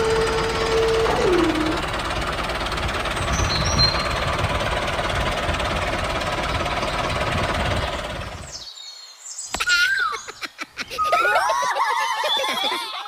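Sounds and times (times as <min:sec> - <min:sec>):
motor whine dropping in pitch: 0:00.0 - 0:01.9.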